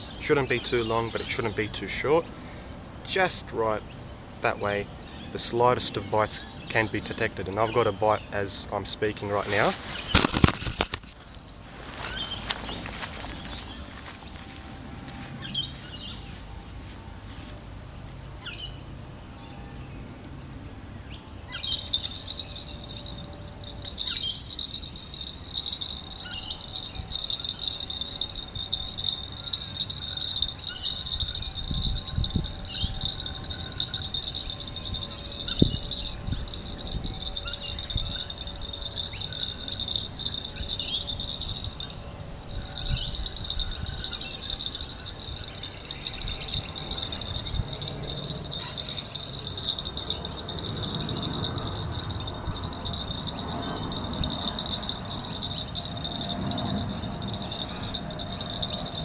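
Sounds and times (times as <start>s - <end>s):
bird chirps: 21.1s - 59.0s
insect trilling: 21.5s - 59.0s
wind buffeting microphone: 25.2s - 59.0s.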